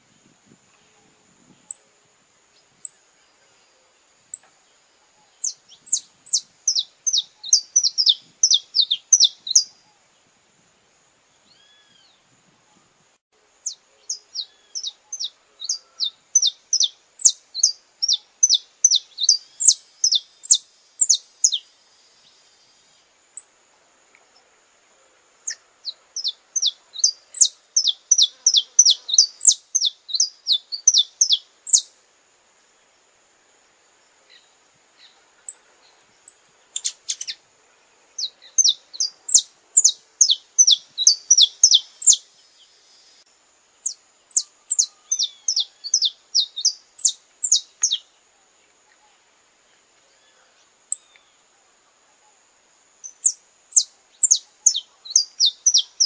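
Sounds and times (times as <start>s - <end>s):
finch chirping: 5.4s - 9.7s, 13.6s - 21.6s, 25.5s - 31.9s, 36.8s - 37.4s, 38.2s - 42.2s, 43.8s - 48.0s, 53.1s - 56.0s.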